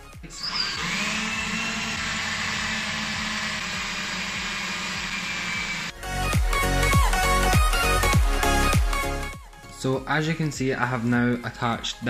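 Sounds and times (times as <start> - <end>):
drill bit grinding wood: 0.0 - 6.0
electric drill whining: 0.0 - 6.0.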